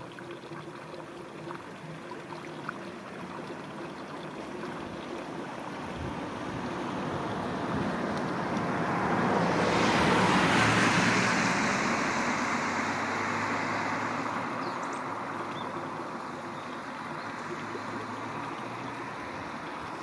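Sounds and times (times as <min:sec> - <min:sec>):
river water flowing: 0:00.0 - 0:20.0
car passing: 0:06.1 - 0:20.0.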